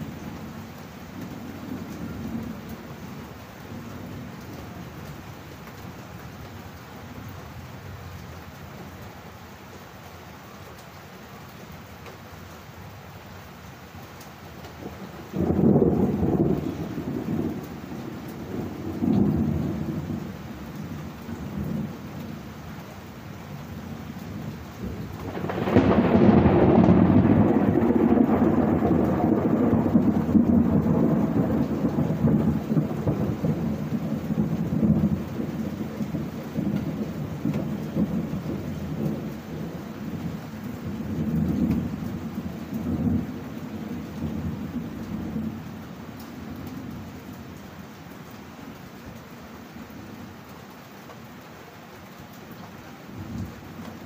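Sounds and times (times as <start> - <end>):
rain falling: 0.0 - 54.0
thunder rumbling: 14.8 - 22.4, 23.8 - 47.6
loud thunderclap: 15.4 - 20.2, 24.8 - 39.8.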